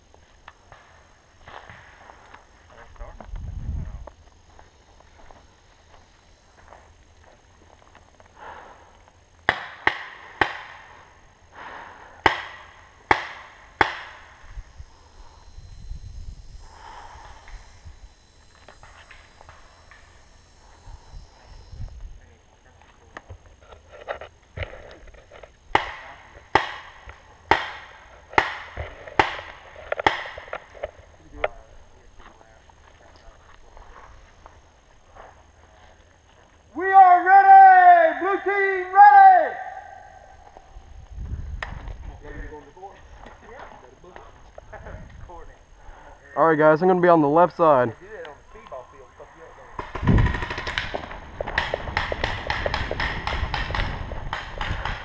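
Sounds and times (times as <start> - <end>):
sharp pops: 9.4 - 10.9, 12.2 - 14.4, 25.7 - 31.0, 49.8 - 55.0
paintball marker shots: 25.7 - 30.7, 49.8 - 55.0.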